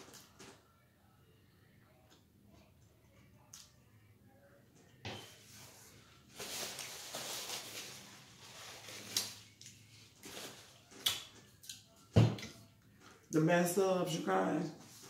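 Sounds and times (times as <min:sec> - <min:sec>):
wrapper rustling and crinkling: 0:06.2 - 0:10.9.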